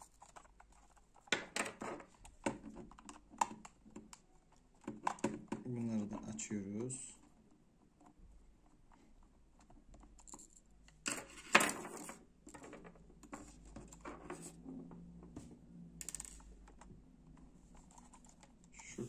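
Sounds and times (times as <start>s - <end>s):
plastic mouse shell clicks and rattles: 0.0s - 6.2s, 16.0s - 18.7s.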